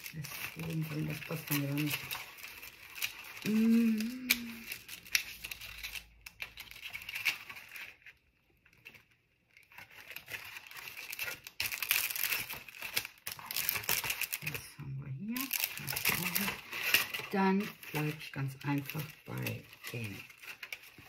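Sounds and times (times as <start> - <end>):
plastic packets crinkling and rustling: 0.0 - 21.0
person humming: 3.4 - 4.8.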